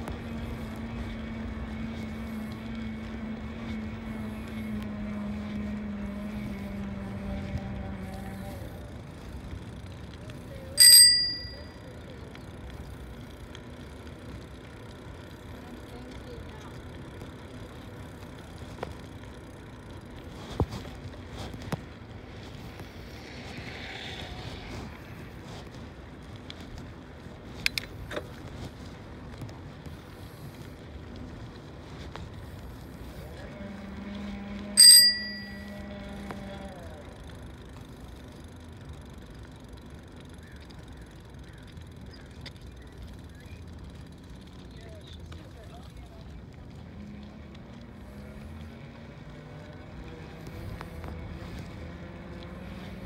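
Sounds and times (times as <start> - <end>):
wind and tyre noise: 0.0 - 53.0
bicycle bell ringing: 10.8 - 11.8, 34.8 - 35.9.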